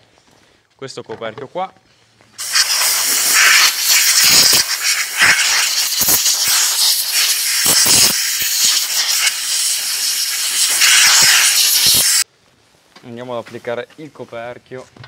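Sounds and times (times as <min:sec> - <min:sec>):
air blow gun hissing: 0:02.4 - 0:12.2.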